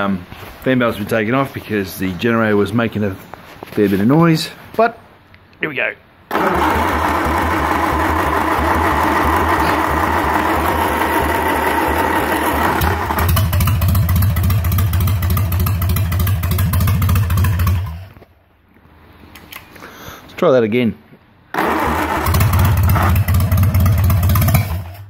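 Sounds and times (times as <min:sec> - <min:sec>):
truck engine turning over: 0:06.3 - 0:18.3, 0:21.5 - 0:25.0.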